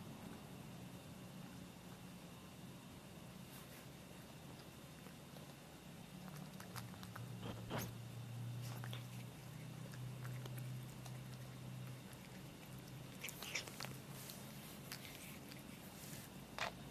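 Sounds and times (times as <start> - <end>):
cat crunching dry treat: 4.3 - 8.0, 8.6 - 16.8.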